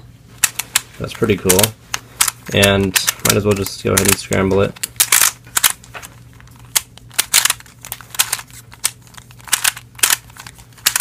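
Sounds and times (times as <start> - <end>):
plastic puzzle clicks: 1.5 - 5.8, 6.7 - 11.0.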